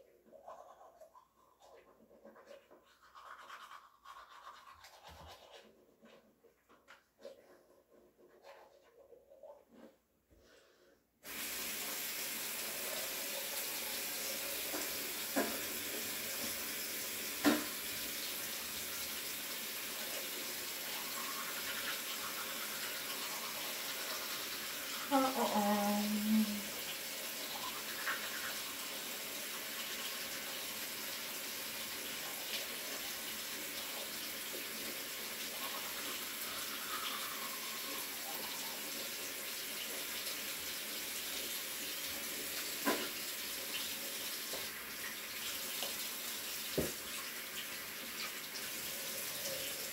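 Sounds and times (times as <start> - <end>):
faucet running into sink: 11.3 - 49.9.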